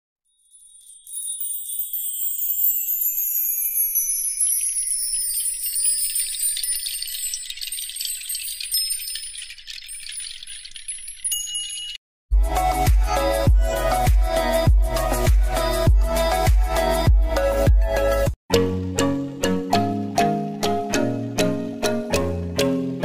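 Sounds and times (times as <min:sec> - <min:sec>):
shimmering chimes and jingling bells: 0:00.2 - 0:17.0
electronic dance music: 0:12.4 - 0:18.3.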